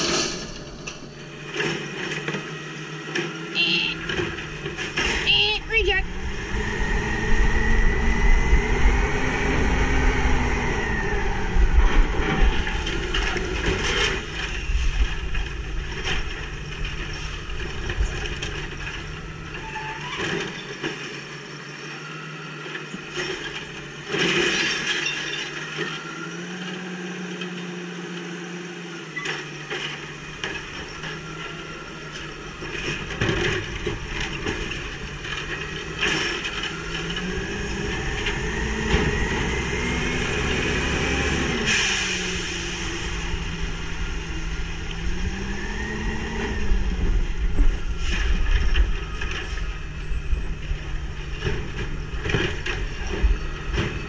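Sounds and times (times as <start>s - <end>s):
hydraulic whine: 0.0s - 5.2s
diesel engine revving: 5.9s - 24.9s, 25.5s - 54.0s.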